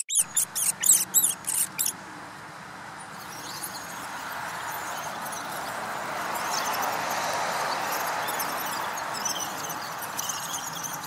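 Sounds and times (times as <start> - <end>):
faint bird chirps: 0.0 - 1.9, 8.0 - 11.0
rodent squeaks: 0.0 - 1.9.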